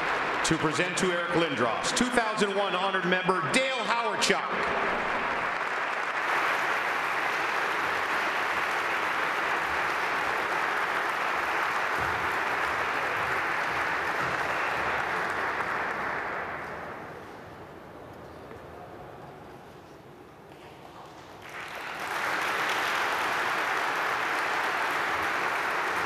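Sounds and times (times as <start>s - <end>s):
large audience applauding: 0.0s - 17.4s, 21.3s - 26.0s.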